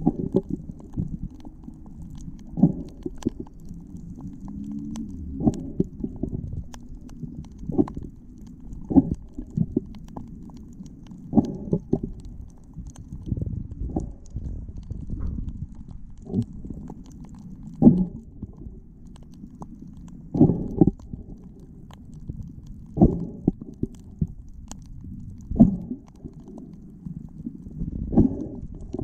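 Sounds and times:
underwater water rumbling: 0.0 - 29.0.

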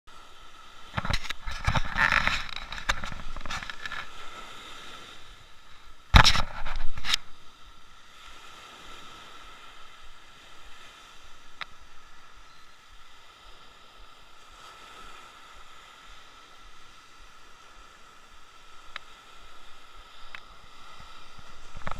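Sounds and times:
faint steady hiss: 0.1 - 21.9
rough scraping and rustling: 0.6 - 7.5.

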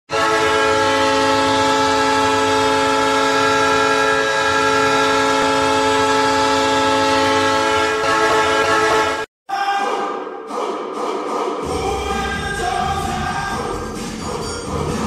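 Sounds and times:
goal horn blast: 0.1 - 9.3.

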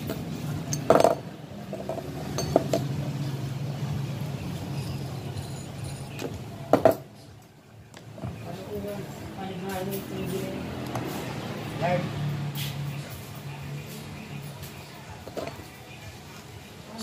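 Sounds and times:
metal clinks and knocks: 0.0 - 3.4.

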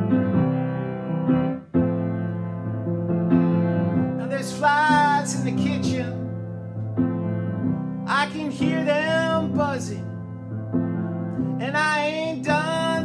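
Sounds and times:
piano chords: 0.0 - 13.0
person singing: 4.2 - 6.2, 8.1 - 10.1, 11.6 - 13.0.

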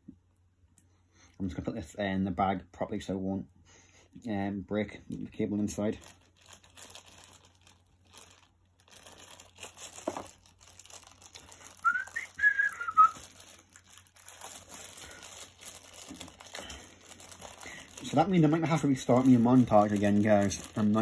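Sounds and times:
plastic bag crinkling: 5.1 - 21.0
short whistle: 11.8 - 13.2.

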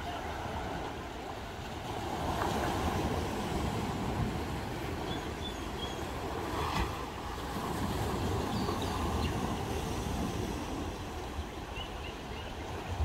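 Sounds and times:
waves washing against rocks: 0.0 - 11.4.

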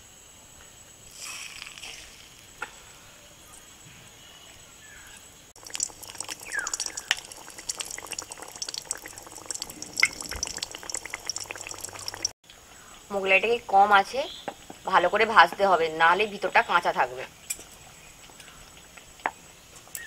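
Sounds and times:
oil sizzling and spattering: 1.1 - 2.6, 5.6 - 12.4.

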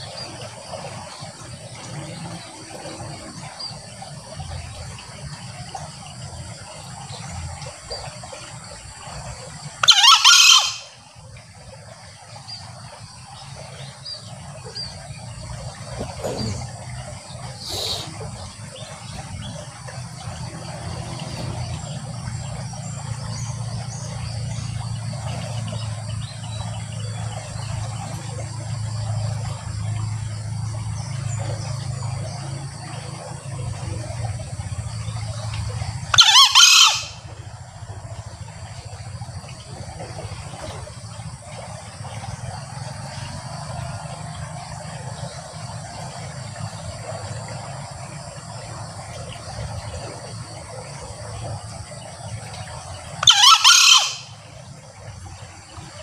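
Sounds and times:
junglefowl crowing: 9.8 - 11.0, 36.1 - 37.3, 53.2 - 54.4
high insect drone: 10.8 - 56.0.

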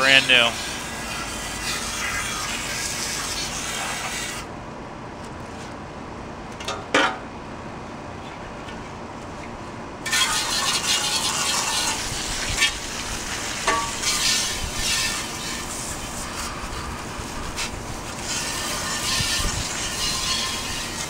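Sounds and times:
hose nozzle spraying water: 10.1 - 21.0.

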